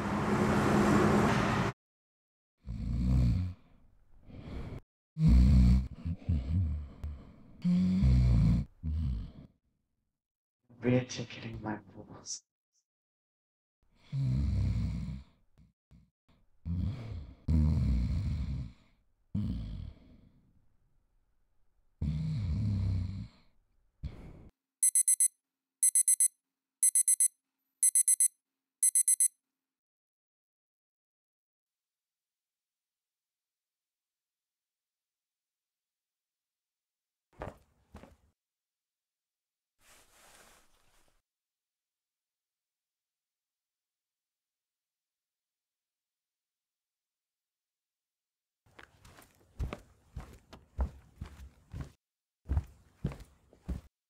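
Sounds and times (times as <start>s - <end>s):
man snoring loudly: 2.6s - 3.7s, 5.2s - 7.0s, 7.6s - 9.5s, 14.0s - 15.4s, 16.6s - 20.2s, 22.0s - 23.4s
phone alarm beeping: 24.8s - 29.3s.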